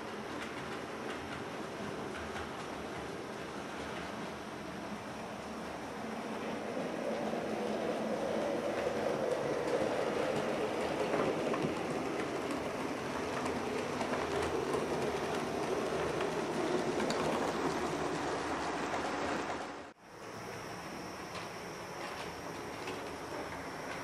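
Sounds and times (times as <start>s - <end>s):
wheels clicking over rail joints: 0.0s - 20.0s, 20.7s - 24.0s.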